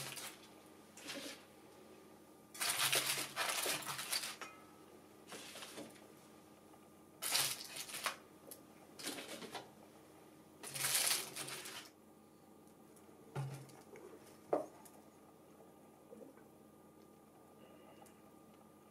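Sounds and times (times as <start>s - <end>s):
aluminium foil crinkling: 0.0s - 1.4s, 2.6s - 4.6s, 7.2s - 8.2s, 9.0s - 9.6s, 10.6s - 12.0s.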